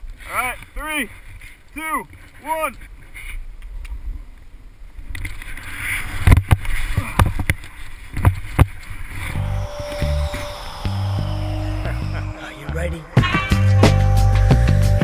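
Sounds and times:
wind on microphone: 0:05.4 - 0:14.2
music with low beat: 0:09.4 - 0:15.0.

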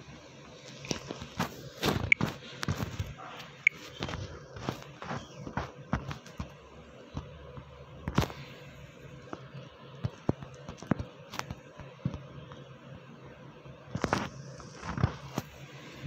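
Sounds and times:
faint steady hum: 0:00.0 - 0:16.0
fingertips tapping touchscreen: 0:01.9 - 0:06.5.

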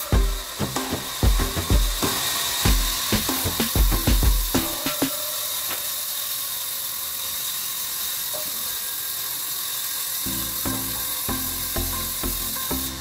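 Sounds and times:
background music with regular beat: 0:00.0 - 0:05.3, 0:10.3 - 0:13.0
band saw running: 0:00.0 - 0:13.0.

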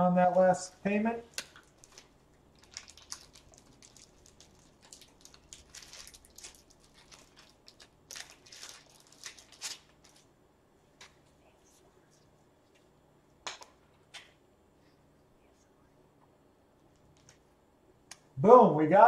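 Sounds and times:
gloved hands crinkling: 0:01.3 - 0:11.4.

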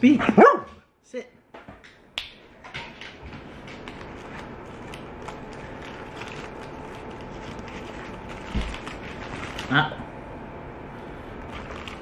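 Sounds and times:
steady background hum: 0:00.0 - 0:12.0
aluminium foil wrapper crinkling: 0:03.8 - 0:09.8, 0:11.4 - 0:12.0.

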